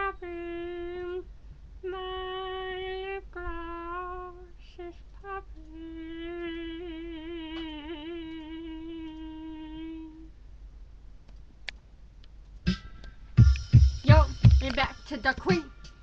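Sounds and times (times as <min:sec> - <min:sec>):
person humming: 0:00.0 - 0:10.4.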